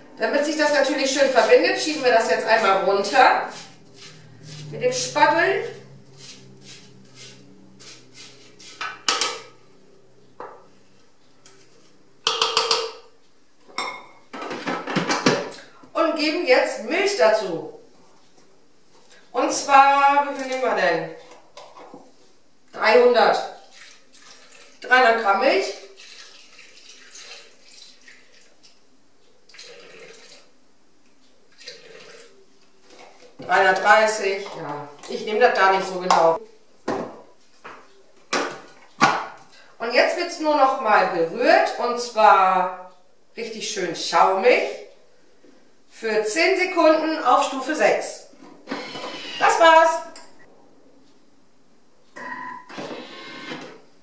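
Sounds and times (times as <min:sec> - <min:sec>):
spatula scraping ice in metal bowl: 0:01.2 - 0:09.1
milk pouring into metal bowl: 0:23.6 - 0:24.8, 0:25.8 - 0:28.6, 0:29.5 - 0:30.6, 0:31.5 - 0:32.4.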